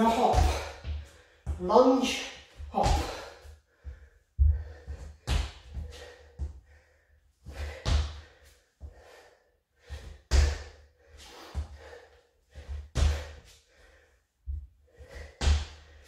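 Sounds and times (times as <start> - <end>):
trainers thudding on wooden floor: 2.6 - 3.3.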